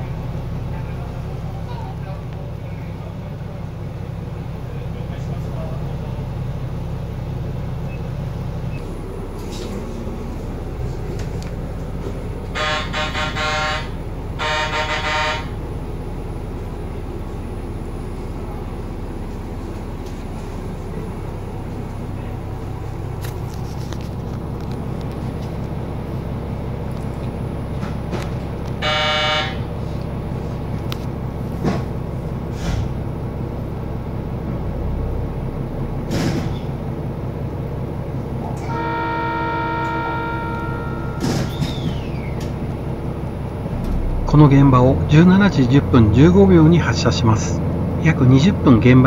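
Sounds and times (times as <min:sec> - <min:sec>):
stopped train low rumble: 0:00.0 - 0:49.0
train communication buzzer: 0:12.5 - 0:15.6, 0:28.8 - 0:29.7, 0:38.6 - 0:41.8.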